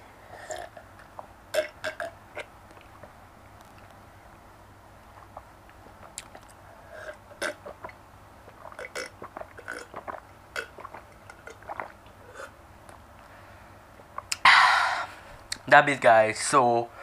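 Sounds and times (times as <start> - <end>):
gulping from a mug: 5.2 - 12.6.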